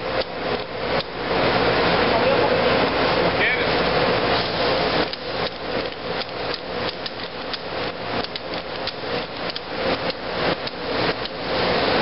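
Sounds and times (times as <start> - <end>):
revolver clicking: 5.0 - 11.4.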